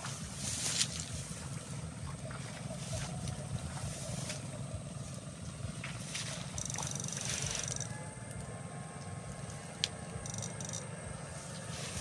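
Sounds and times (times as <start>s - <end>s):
swish of legs through grass: 0.0s - 4.6s
footsteps through tall grass: 0.0s - 7.8s, 11.2s - 12.0s
steady low rumble: 0.0s - 12.0s.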